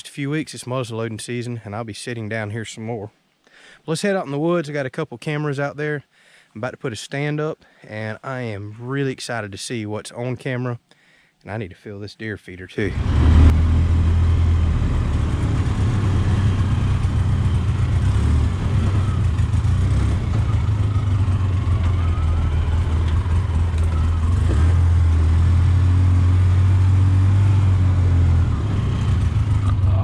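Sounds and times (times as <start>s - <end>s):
utility vehicle engine droning: 12.9s - 30.0s.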